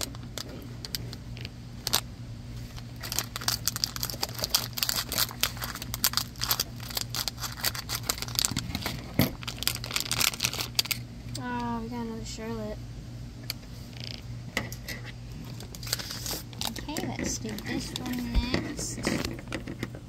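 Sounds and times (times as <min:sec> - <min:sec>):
foil packet crinkling: 0:00.0 - 0:11.1, 0:15.4 - 0:19.7.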